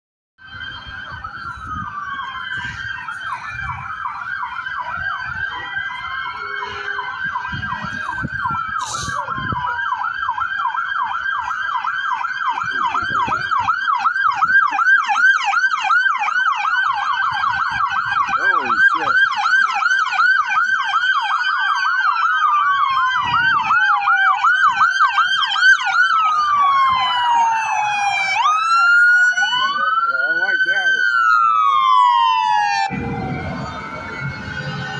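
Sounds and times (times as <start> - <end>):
police sirens wailing and yelping: 0.4 - 34.9.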